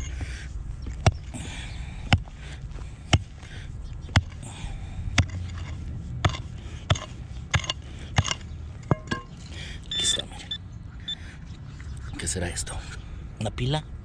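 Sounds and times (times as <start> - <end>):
digging tool chopping soil: 4.1 - 4.4, 5.1 - 8.5
dirt scraping: 4.1 - 10.2.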